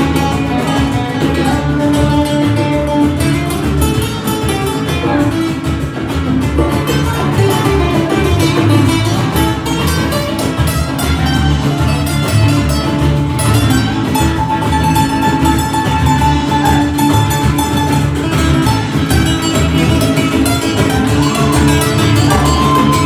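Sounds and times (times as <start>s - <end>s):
hand percussion and drum beat: 0.0s - 23.0s
strummed acoustic guitars: 0.0s - 23.0s.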